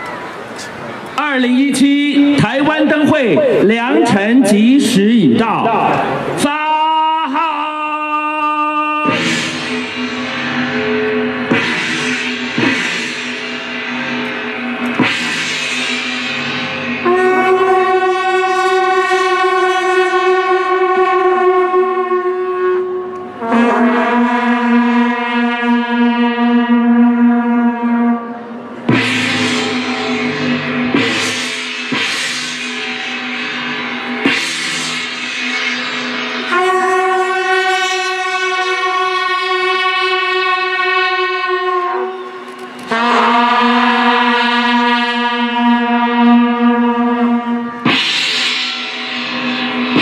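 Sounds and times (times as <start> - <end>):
horn-like music over loudspeakers: 1.1 - 50.0.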